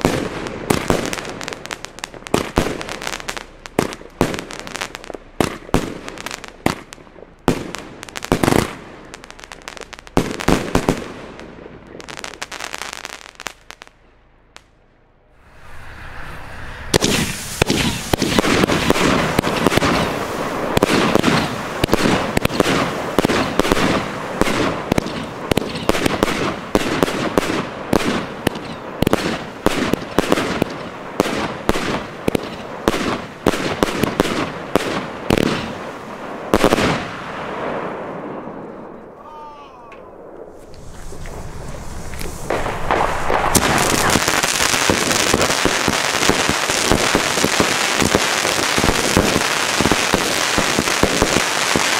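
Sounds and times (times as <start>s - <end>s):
fireworks bangs and crackles: 0.0s - 14.8s, 15.5s - 51.9s
firework rising hiss: 15.3s - 26.2s, 40.4s - 51.9s.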